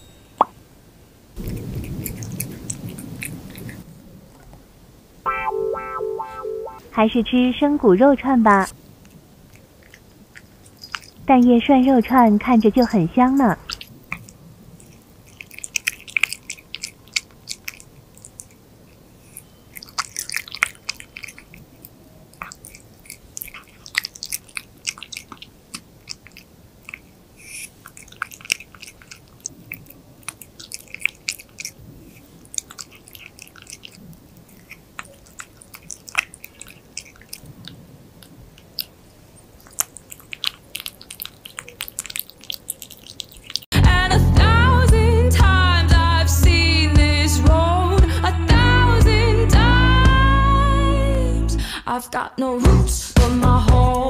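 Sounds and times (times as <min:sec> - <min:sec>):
cat chewing raw meat: 0:01.4 - 0:03.9, 0:08.7 - 0:43.7.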